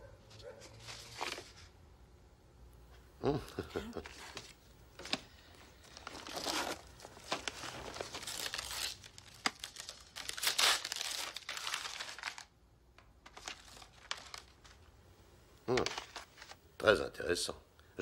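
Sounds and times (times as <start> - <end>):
paper wrapping tearing and crumpling: 5.8 - 12.5, 13.2 - 14.9, 15.7 - 16.6.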